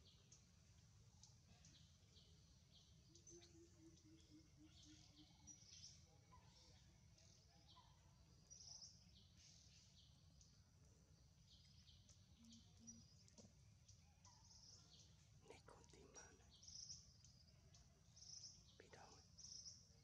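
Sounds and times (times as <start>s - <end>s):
low steady hum: 9.0s - 20.0s.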